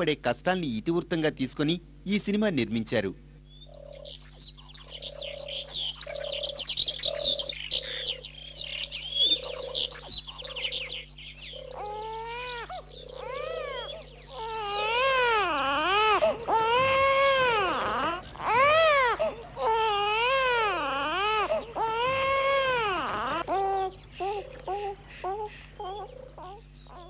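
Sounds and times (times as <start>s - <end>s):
birds chirping: 3.4s - 27.0s
low repeating bird call: 3.5s - 27.0s
infant crying: 11.8s - 27.0s.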